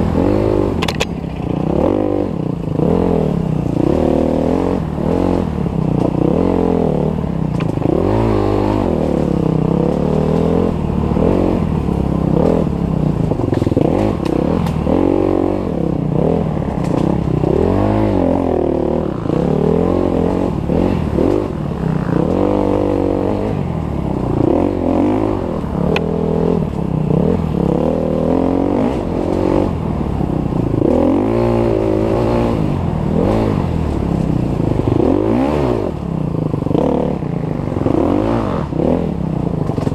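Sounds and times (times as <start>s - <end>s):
bike knocking and rattling: 0.0s - 2.6s, 7.4s - 15.2s, 15.8s - 17.6s, 39.4s - 39.9s
dirt bike engine revving: 0.0s - 39.9s.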